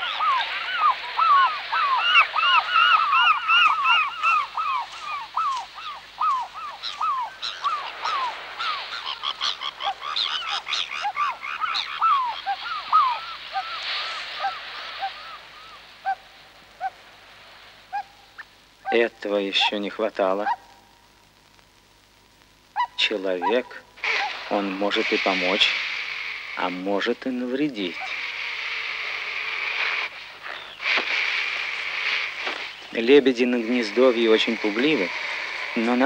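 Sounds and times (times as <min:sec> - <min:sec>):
waterfowl honking: 0:00.0 - 0:17.0, 0:22.8 - 0:26.7.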